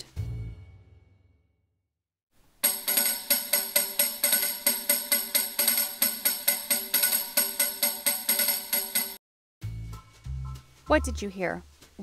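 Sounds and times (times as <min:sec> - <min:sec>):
tambourine jingling: 0:02.6 - 0:09.2.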